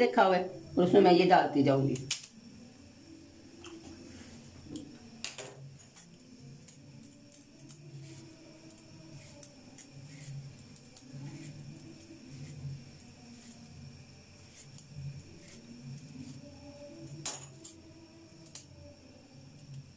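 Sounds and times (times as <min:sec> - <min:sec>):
knife peeling and cutting: 0:07.7 - 0:13.7.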